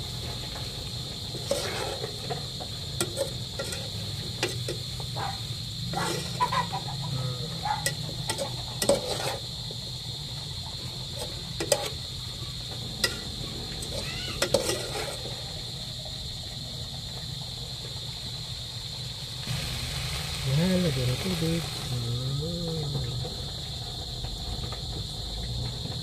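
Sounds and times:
metal spoon stirring in pot: 0:01.3 - 0:02.4, 0:03.0 - 0:04.9, 0:05.9 - 0:06.8, 0:07.7 - 0:09.5, 0:11.1 - 0:12.0, 0:13.0 - 0:15.4.

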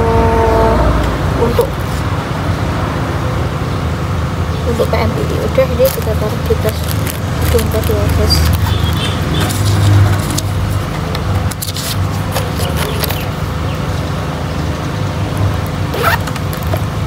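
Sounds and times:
low mechanical rumble: 0:00.0 - 0:17.0
light clicks and rustles: 0:05.8 - 0:13.3.

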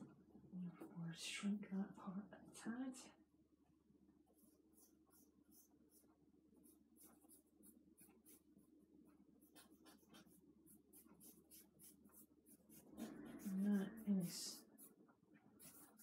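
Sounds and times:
low steady hum: 0:00.0 - 0:16.0
charcoal scratching on paper: 0:04.3 - 0:16.0.

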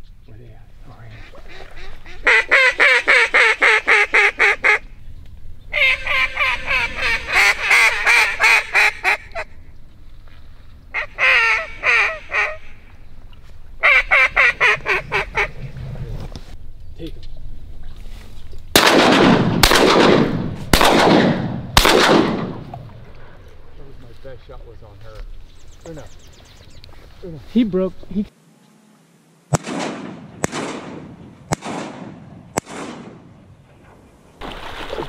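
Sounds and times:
duck call quacking: 0:01.1 - 0:04.8, 0:05.7 - 0:09.5, 0:11.0 - 0:12.8, 0:13.8 - 0:15.5.

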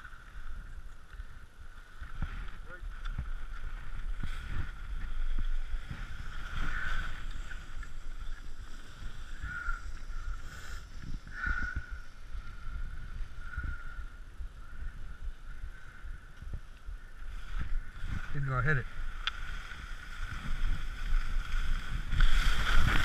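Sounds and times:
faint steady whine: 0:00.0 - 0:23.0
wind rumbling: 0:00.0 - 0:23.0
skis scraping on packed snow: 0:01.8 - 0:11.0, 0:17.3 - 0:23.0.

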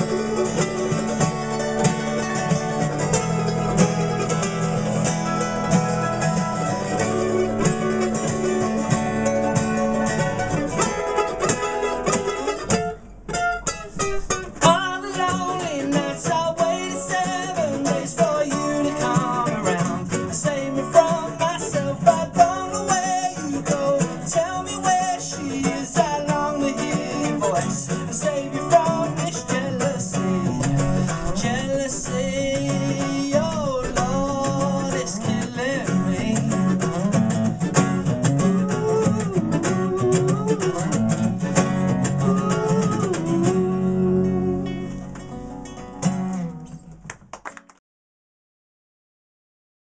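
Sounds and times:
acoustic guitars strumming: 0:00.0 - 0:47.3
mandolin: 0:00.0 - 0:47.4
man singing: 0:14.6 - 0:45.1.

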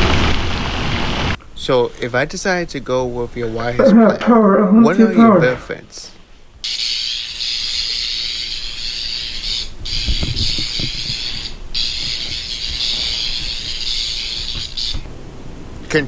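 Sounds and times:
electric buzzing crackle: 0:06.7 - 0:15.2.

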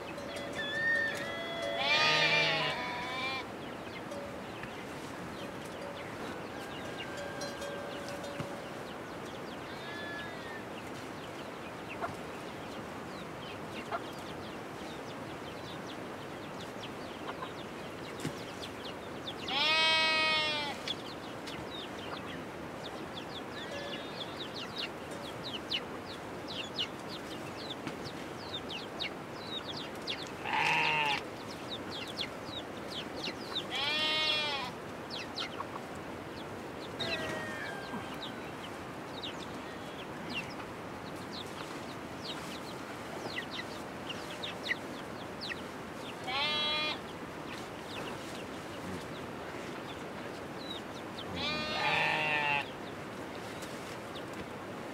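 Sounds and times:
steady background hiss: 0:00.0 - 0:54.9
livestock bleating: 0:00.6 - 0:03.5, 0:09.7 - 0:10.6, 0:19.5 - 0:20.8, 0:30.4 - 0:31.2, 0:33.7 - 0:34.8, 0:37.0 - 0:38.0, 0:46.2 - 0:47.0, 0:51.3 - 0:52.7.

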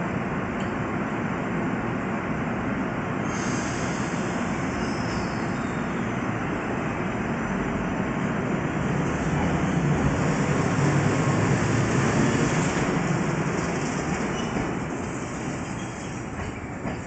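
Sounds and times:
tram electric running noise: 0:03.9 - 0:17.0.

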